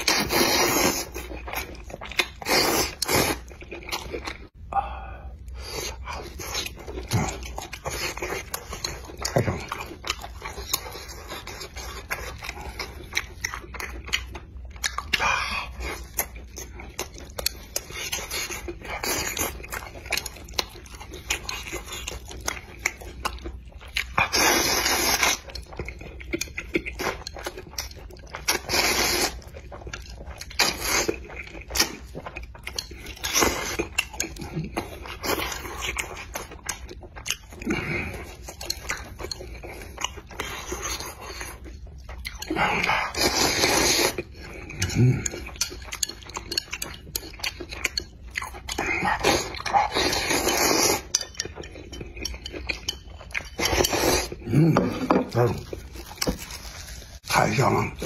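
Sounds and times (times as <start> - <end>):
wet chewing and lip smacks: 6.3 - 37.7, 45.2 - 54.4.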